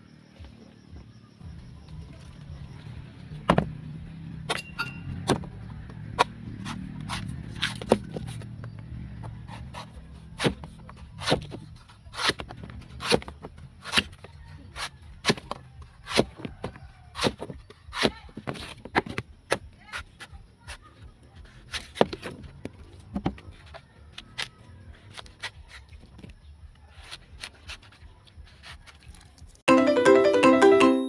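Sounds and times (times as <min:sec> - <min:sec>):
machete chopping coconut: 0:04.4 - 0:08.4, 0:09.2 - 0:20.8, 0:24.2 - 0:25.9.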